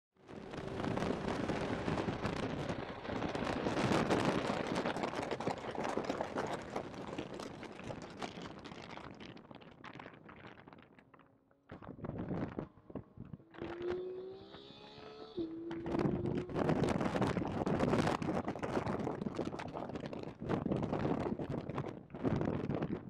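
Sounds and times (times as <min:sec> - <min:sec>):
distorted race car engine: 0:00.2 - 0:06.8, 0:11.7 - 0:20.1.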